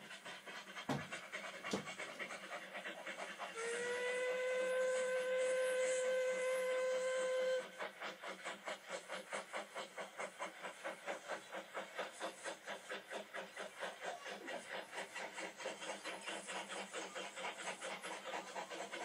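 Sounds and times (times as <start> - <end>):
rhythmic steam train chuffing: 0.0 - 19.0
steam whistle: 3.5 - 7.9.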